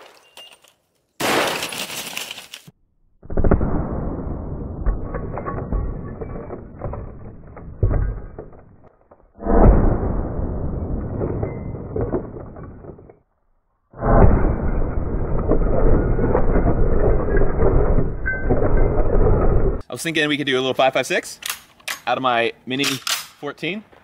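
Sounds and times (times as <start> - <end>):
glass cracking and shattering: 0.0 - 2.7
gunshots: 1.2 - 1.8.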